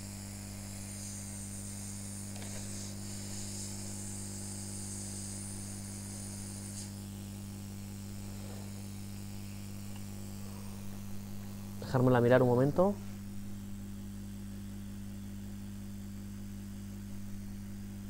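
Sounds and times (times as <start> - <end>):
hot air gun hissing: 0.0 - 7.1
steady low hum: 0.0 - 18.0.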